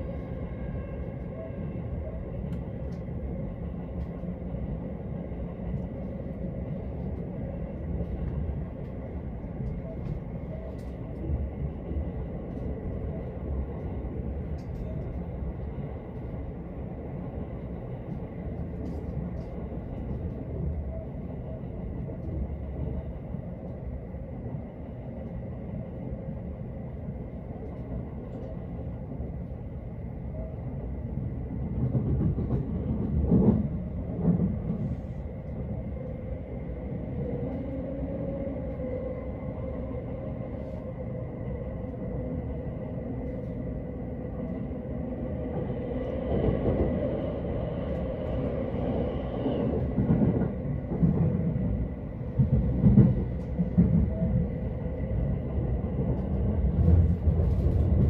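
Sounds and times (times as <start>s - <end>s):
train wheels rumbling on track: 31.1s - 39.4s, 41.9s - 58.0s.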